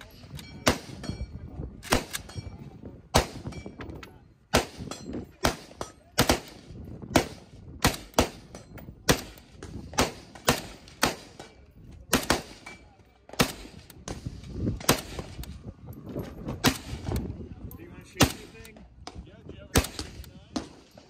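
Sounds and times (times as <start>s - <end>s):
rifle shots with echo: 0.6s - 1.2s, 1.8s - 2.3s, 3.1s - 3.6s, 4.5s - 15.6s, 16.6s - 17.3s, 18.1s - 21.0s.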